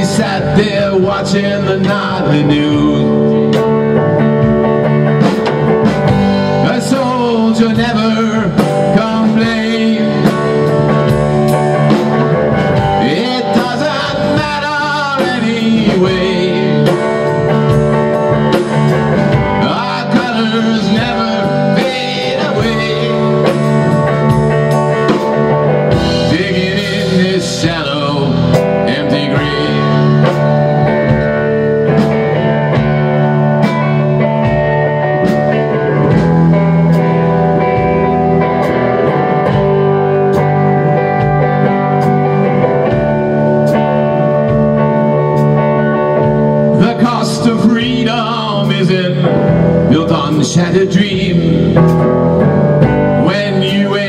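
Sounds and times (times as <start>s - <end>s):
bending lead guitar line: 0.0s - 54.0s
drum kit with cymbals: 0.0s - 54.0s
electric guitars: 0.0s - 54.0s.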